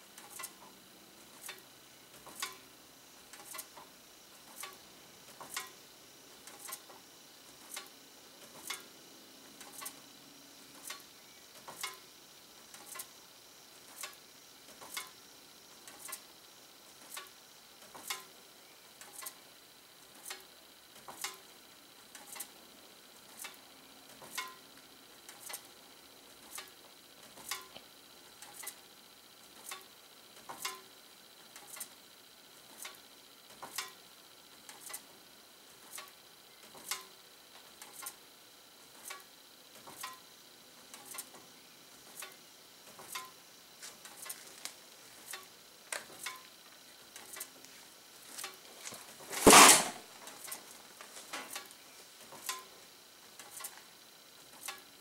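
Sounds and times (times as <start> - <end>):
fan blades ticking against paper tag: 0.1 - 5.8, 6.4 - 7.0, 9.6 - 10.0, 12.7 - 13.2, 15.8 - 16.3, 19.0 - 19.4, 26.4 - 27.8, 28.4 - 28.8, 29.5 - 30.9, 35.7 - 38.2, 40.9 - 41.4, 42.1 - 55.0.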